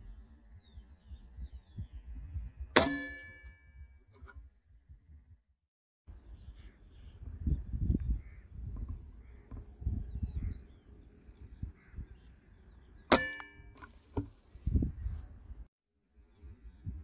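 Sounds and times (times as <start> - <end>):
air rifle shot: 2.7 - 3.3.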